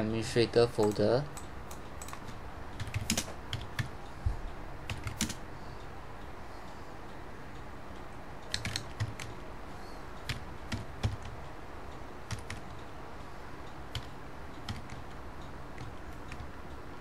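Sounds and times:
keyboard keystrokes: 0.8 - 3.9, 4.9 - 5.4, 8.5 - 9.3, 10.2 - 11.4, 12.3 - 12.8, 13.9 - 15.2, 15.8 - 16.6.

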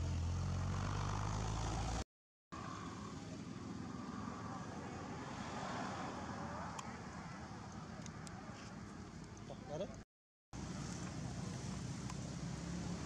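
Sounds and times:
engine humming: 0.0 - 2.0
outdoor background hiss: 10.6 - 13.0.

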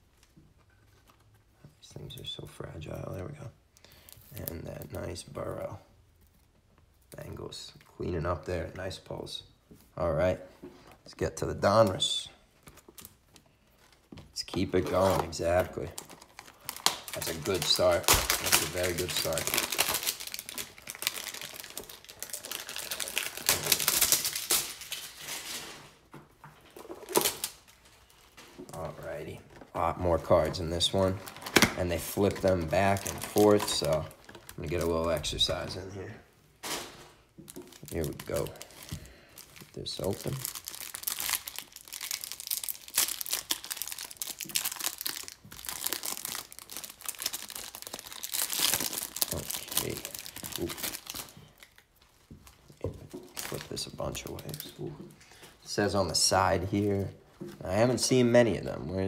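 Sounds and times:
plastic wrap crinkling and tearing: 11.6 - 35.9, 36.6 - 58.8
plastic packaging crackling: 11.6 - 58.8
packaging snapping: 14.5 - 25.2.

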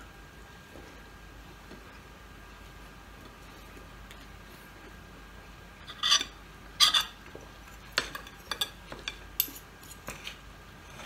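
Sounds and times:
cutlery scraping plate: 5.9 - 7.2.

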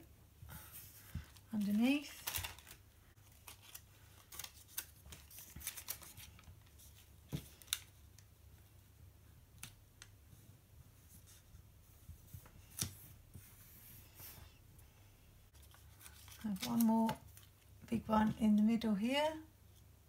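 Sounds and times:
soft paper rustles and clicks: 0.6 - 8.8, 15.5 - 18.8.

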